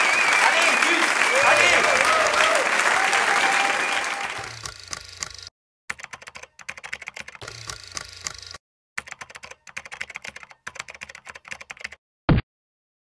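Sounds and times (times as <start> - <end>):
keyboard typing: 4.4 - 12.0.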